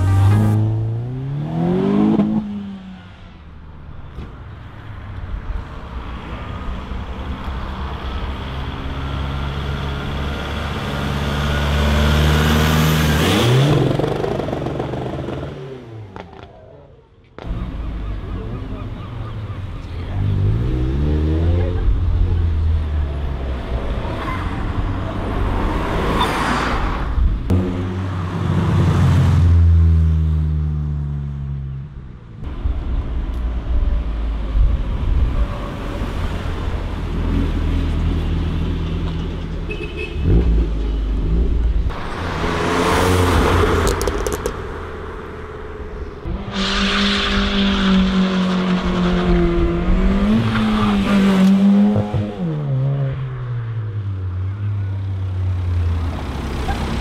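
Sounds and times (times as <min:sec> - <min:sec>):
cars driving past: 0:32.5 - 0:54.4.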